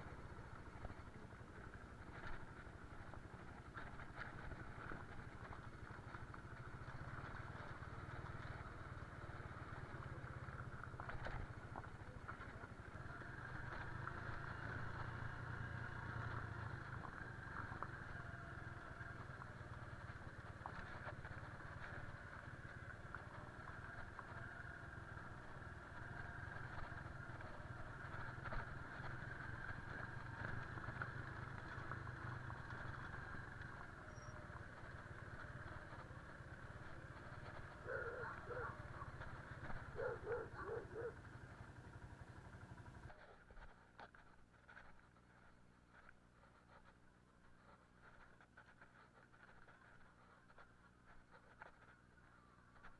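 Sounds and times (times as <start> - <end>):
motorcycle engine running slowly: 0.0 - 52.9
tyres on gravel and dirt: 0.0 - 52.9.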